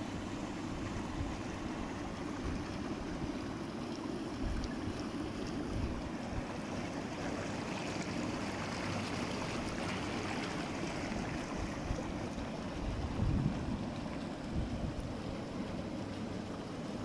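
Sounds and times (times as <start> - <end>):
hot tub water bubbling: 0.0 - 17.0
wind rumbling on microphone: 11.4 - 15.5.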